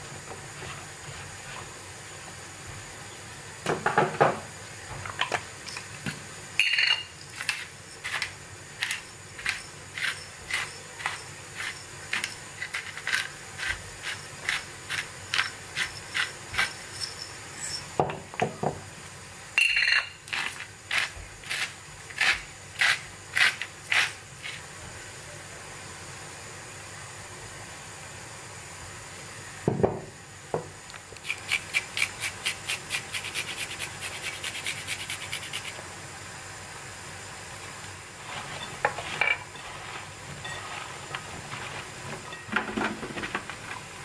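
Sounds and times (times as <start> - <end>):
spice mill grinding: 6.7 - 17.8, 20.3 - 24.6, 31.2 - 35.8.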